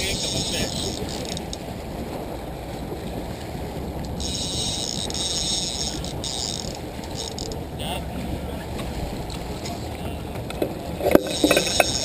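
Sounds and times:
boat noise: 0.0s - 12.0s
wind: 0.0s - 12.0s
fishing reel drag buzzing: 4.0s - 7.6s, 11.2s - 12.0s.

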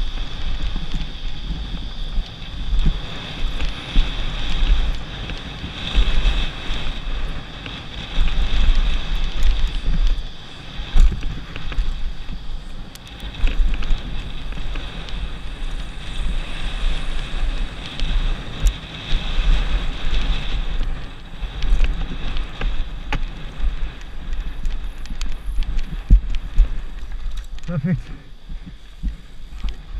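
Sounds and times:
wind buffeting microphone: 0.0s - 29.9s
bike knocks and rattles: 21.5s - 27.7s.

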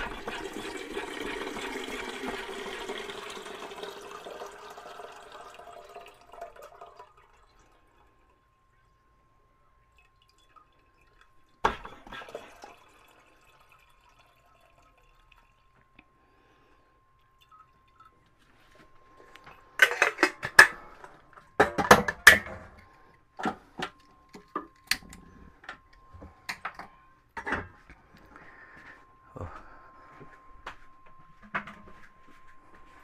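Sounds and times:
faint steady high tone: 4.2s - 33.0s
pots and dishes clattering: 19.8s - 20.9s, 21.6s - 22.8s.

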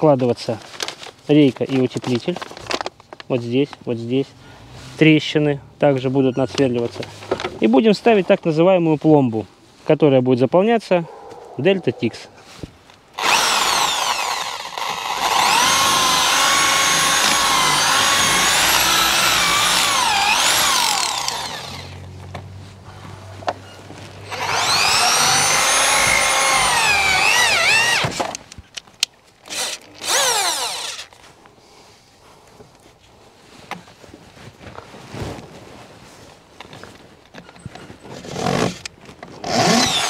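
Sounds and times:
electric drill boring into wood: 13.2s - 22.0s, 24.3s - 28.4s, 29.5s - 31.1s, 38.2s - 40.0s.

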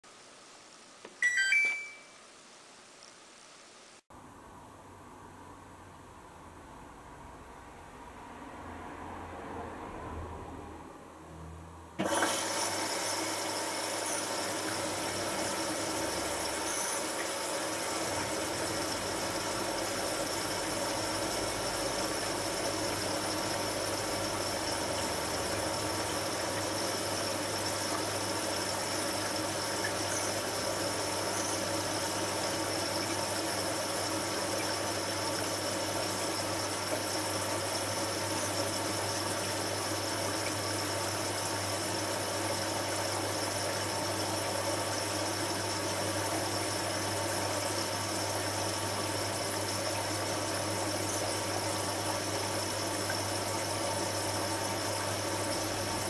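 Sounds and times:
washing machine running: 12.0s - 56.0s.

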